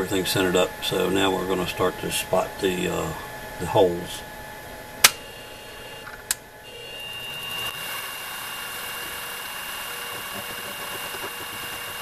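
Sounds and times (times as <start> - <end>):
spindle motor whining: 5.0 - 12.0.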